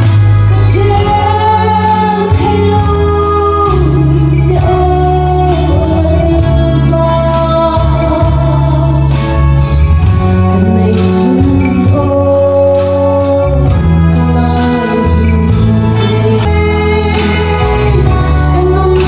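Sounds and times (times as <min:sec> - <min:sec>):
instrumental backing track: 0:00.0 - 0:19.0
woman singing into a microphone: 0:00.0 - 0:19.0.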